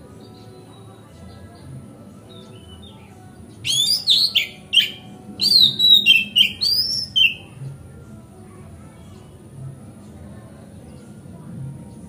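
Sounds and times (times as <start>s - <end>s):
bird singing whistled notes: 2.3s - 7.5s.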